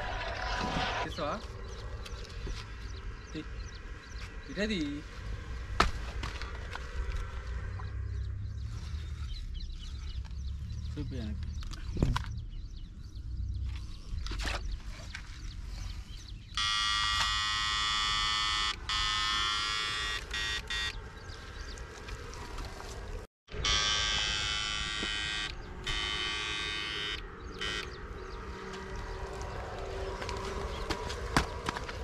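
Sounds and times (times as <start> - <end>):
electrofishing unit buzzing: 16.6 - 21.0, 23.5 - 28.2.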